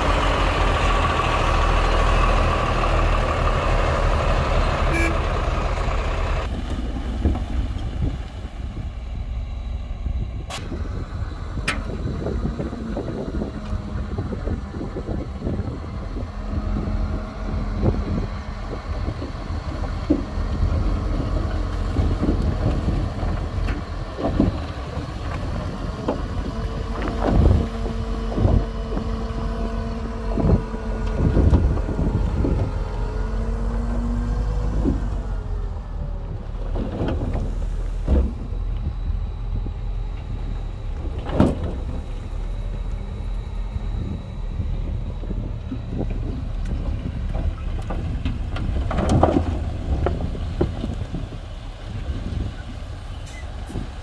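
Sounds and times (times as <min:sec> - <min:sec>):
heavy diesel machinery running: 0:00.0 - 0:54.0
knocks and clanks: 0:46.0 - 0:51.0.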